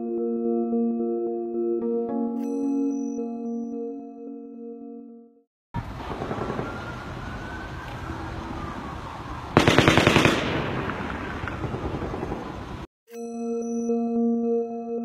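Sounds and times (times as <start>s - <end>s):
siren wailing: 5.8s - 9.6s
street noise: 5.8s - 12.9s
automatic gunfire: 9.6s - 12.6s.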